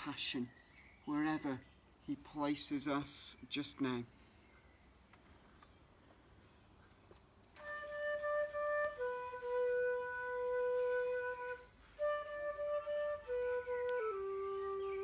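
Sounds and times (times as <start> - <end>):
slow hymn tune on melody instrument: 7.5 - 15.0.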